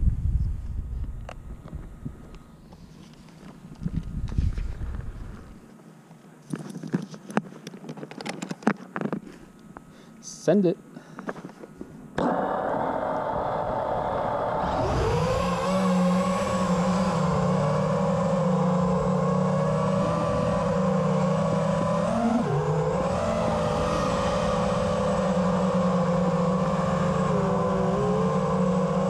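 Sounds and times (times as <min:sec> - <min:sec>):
drone motors buzzing whine: 0:11.3 - 0:29.0.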